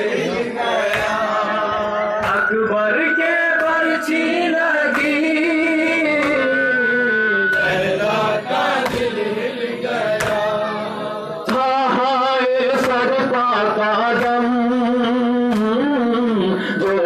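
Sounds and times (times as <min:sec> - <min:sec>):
men chanting a lament: 0:00.0 - 0:17.0
hands slapping chests: 0:00.8 - 0:02.5, 0:10.1 - 0:10.6, 0:15.5 - 0:15.8.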